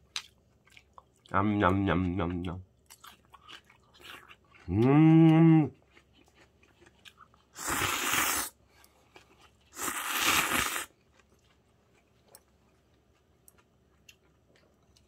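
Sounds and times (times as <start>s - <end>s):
faint chewing: 0.0s - 15.0s
noodles being slurped: 7.5s - 8.6s, 9.7s - 11.0s.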